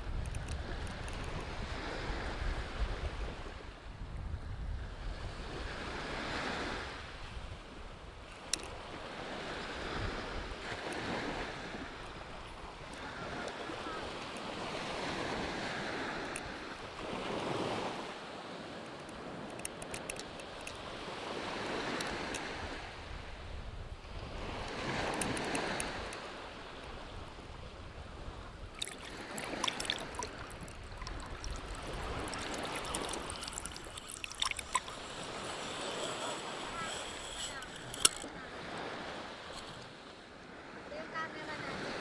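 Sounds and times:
wind rumbling on microphone: 0.0s - 18.1s, 19.1s - 39.5s
small waves washing on sand: 0.0s - 42.0s
sharp click: 36.8s - 38.3s.

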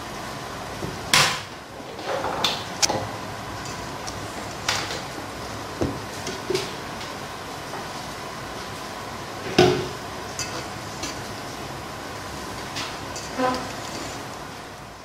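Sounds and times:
spatula scraping a metal bowl: 10.3s - 11.3s, 13.1s - 14.3s.

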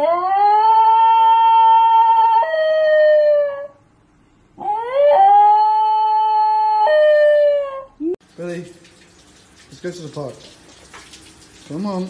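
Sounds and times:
dog howling: 0.0s - 3.8s, 4.6s - 8.0s.

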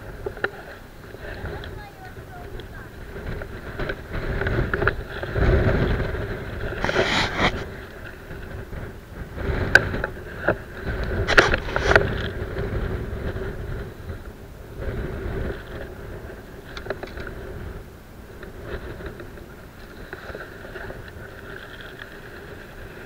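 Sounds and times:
wind rumble on microphone: 0.0s - 23.0s.

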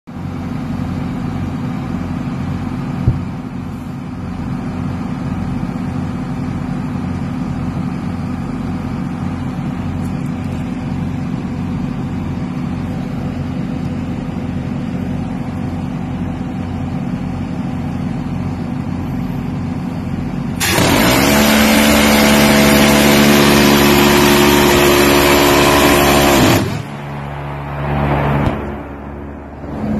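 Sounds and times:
machinery hum: 0.2s - 29.9s
gatling gun firing: 20.6s - 22.2s.

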